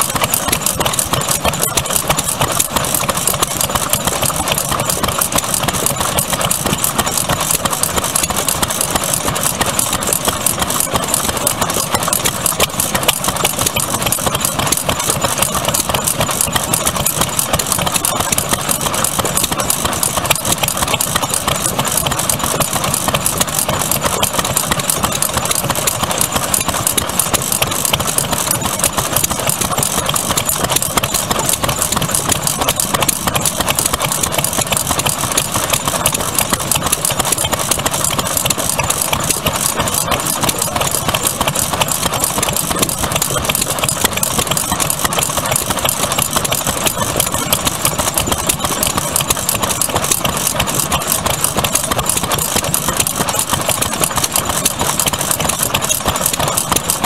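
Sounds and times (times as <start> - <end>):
stationary engines clattering: 0.0 - 57.0.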